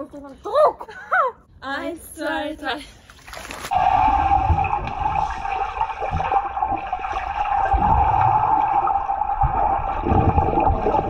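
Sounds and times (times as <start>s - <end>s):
low underwater rumbles: 3.7s - 11.0s
underwater rushing and bubbling: 3.7s - 11.0s.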